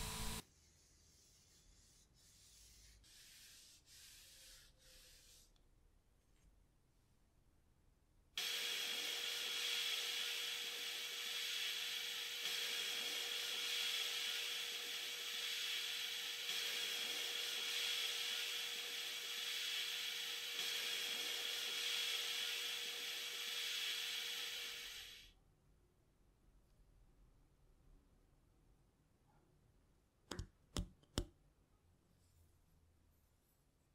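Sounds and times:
sandblaster hissing on metal: 0.0s - 0.4s, 8.4s - 25.3s.

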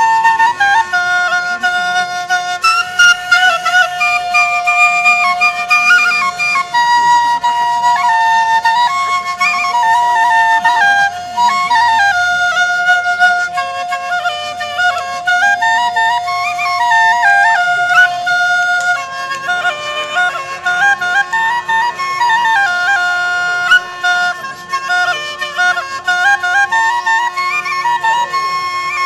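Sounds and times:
double flute drone and melody: 0.0s - 29.0s.

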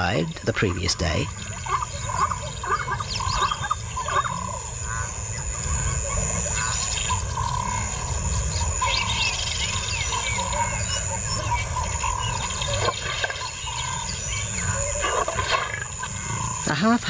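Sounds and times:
small birds chirping: 0.0s - 17.0s
lions growling and snarling: 5.6s - 16.7s.

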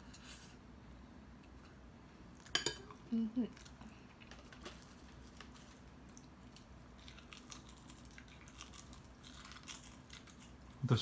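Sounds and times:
person chewing crisp seaweed: 3.6s - 10.9s.

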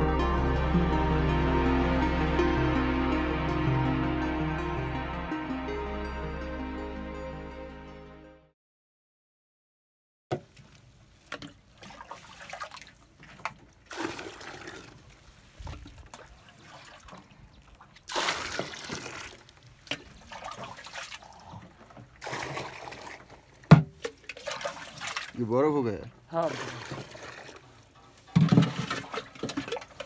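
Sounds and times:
water sloshing in a plastic tank: 10.3s - 30.0s.

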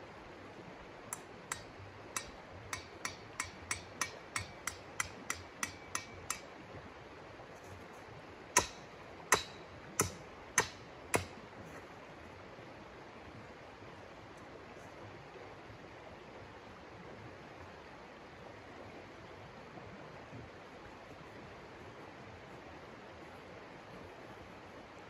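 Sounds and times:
river running: 0.0s - 25.0s
hammer striking metal tent stake: 1.1s - 6.5s, 8.6s - 11.4s.

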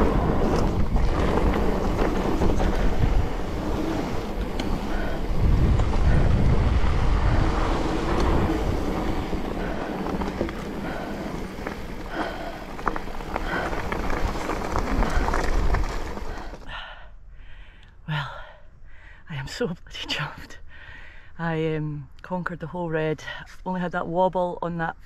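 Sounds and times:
bike clicks and rattles: 0.0s - 16.6s
wind buffeting microphone: 0.0s - 16.6s
bike tyre noise on dirt: 0.0s - 17.0s.

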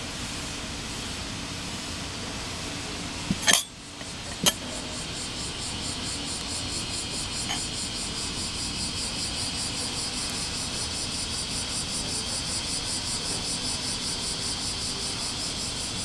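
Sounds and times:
steady hiss: 0.0s - 16.0s
hand tick on metal ashtray: 3.3s - 4.6s.

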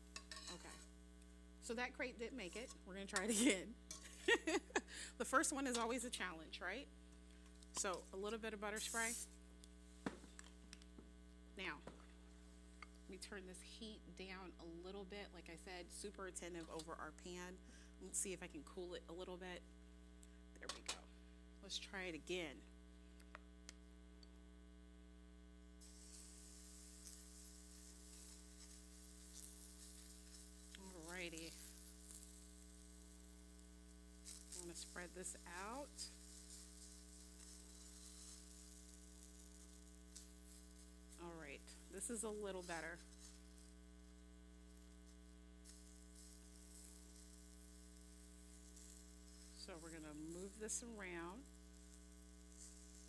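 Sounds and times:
batter sizzling in pan: 0.0s - 6.3s, 6.9s - 13.7s, 25.8s - 53.0s
electrical mains hum: 0.0s - 53.0s.

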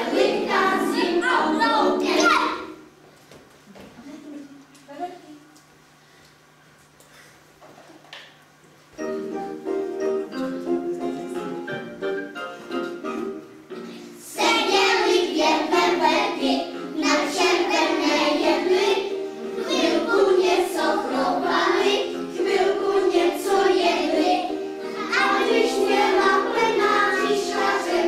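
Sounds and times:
children singing in unison: 0.0s - 2.7s, 14.3s - 28.0s
instrumental backing music: 9.0s - 28.0s.

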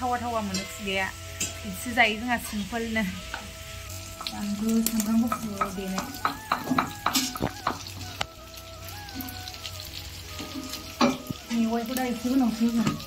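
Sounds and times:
food sizzling in a wok: 0.0s - 13.0s
spatula scraping the pan: 0.2s - 8.0s.

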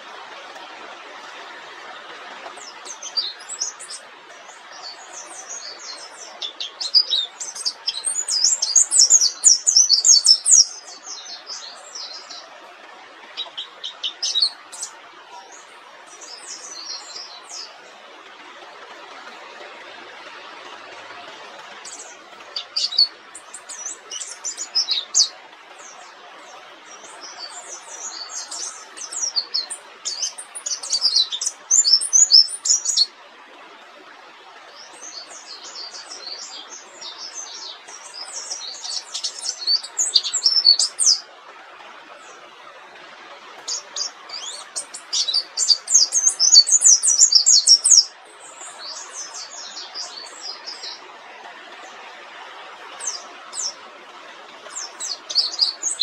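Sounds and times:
steady background hiss: 0.0s - 56.0s
bird twittering song: 1.9s - 12.5s, 13.2s - 17.9s, 21.8s - 33.1s, 34.7s - 41.3s, 43.6s - 51.0s, 52.9s - 53.8s, 54.6s - 56.0s.

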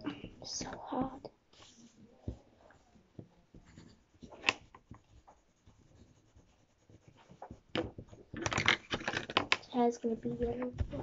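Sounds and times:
crayons scratching on paper: 3.5s - 11.0s.

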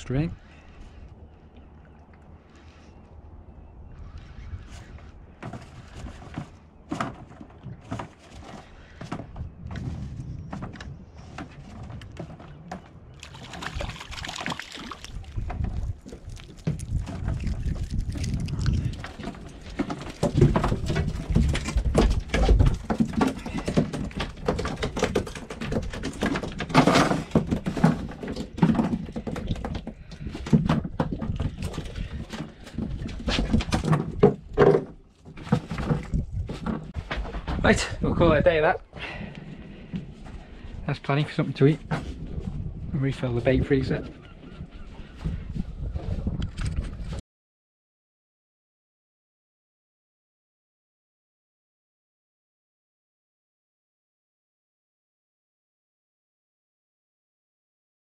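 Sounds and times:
fish flapping on deck: 13.2s - 32.6s.

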